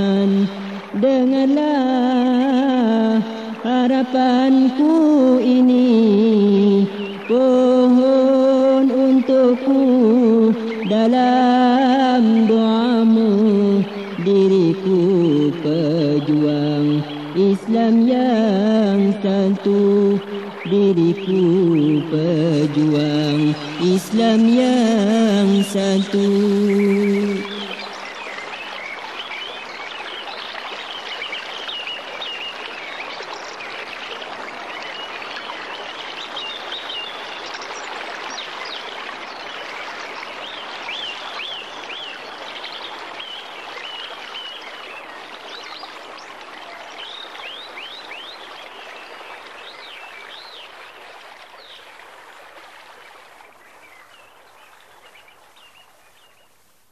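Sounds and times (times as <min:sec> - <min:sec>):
flowing stream: 0:00.0 - 0:56.9
birds chirping: 0:08.8 - 0:50.8.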